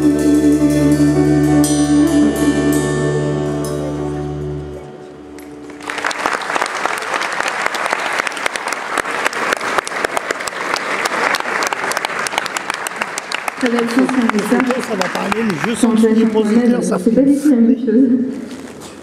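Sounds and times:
held song chord: 0:00.0 - 0:05.8
audience applause: 0:05.4 - 0:16.6.

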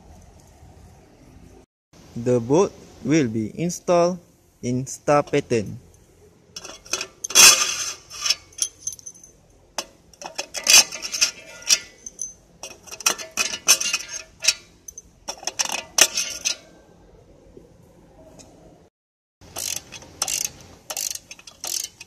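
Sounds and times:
metal bolts clinking: 0:06.6 - 0:16.8, 0:19.4 - 0:22.0.

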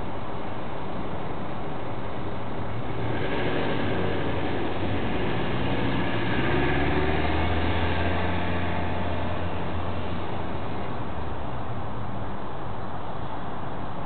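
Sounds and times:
van engine driving off: 0:02.4 - 0:11.7.

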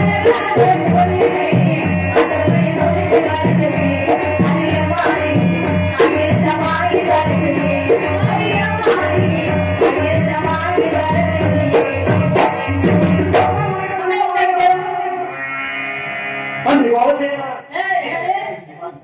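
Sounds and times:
hand drums beating: 0:00.0 - 0:13.8.

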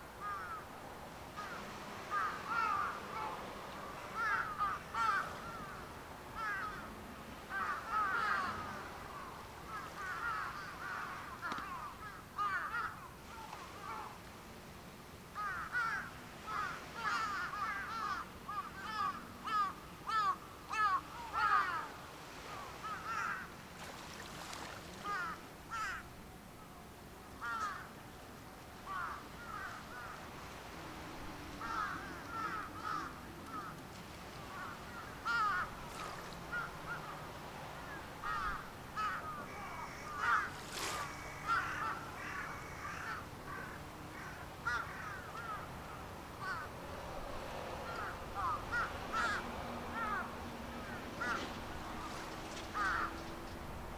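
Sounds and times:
birds harsh calls: 0:31.6 - 0:33.8, 0:34.4 - 0:37.2, 0:37.9 - 0:46.7, 0:47.8 - 0:53.4.

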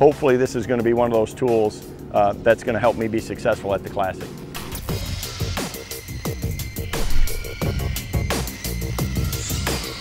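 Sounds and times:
electronic music with heavy beat: 0:04.9 - 0:10.0.

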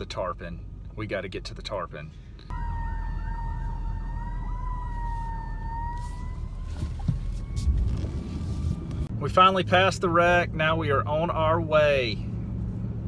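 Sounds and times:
car rumble: 0:00.0 - 0:13.0
emergency siren warbling: 0:02.5 - 0:09.1.

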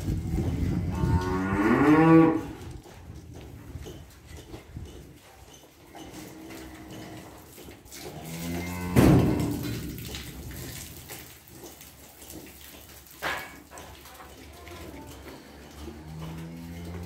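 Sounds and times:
cow mooing: 0:00.8 - 0:02.6, 0:08.1 - 0:09.6, 0:15.4 - 0:17.0.

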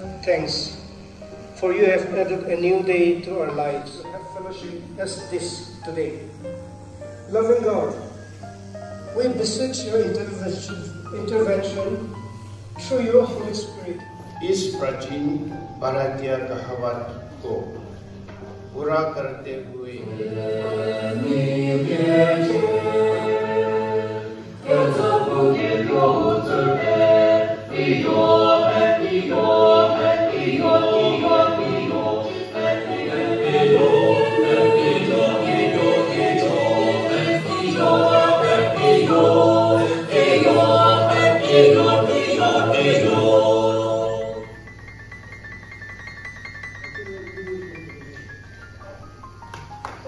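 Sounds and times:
choir singing: 0:19.8 - 0:44.7.

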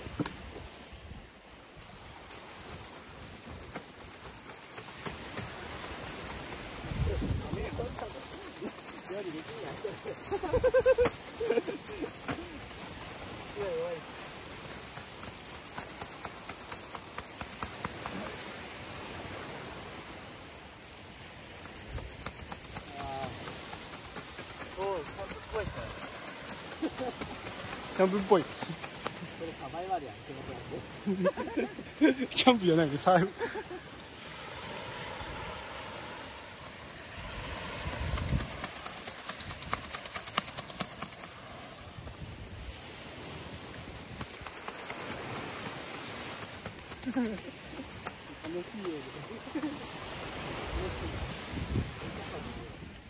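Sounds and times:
surf: 0:00.0 - 0:53.0
wind: 0:00.0 - 0:53.0
wind rumble on microphone: 0:04.9 - 0:08.6, 0:36.9 - 0:40.2, 0:41.4 - 0:53.0.

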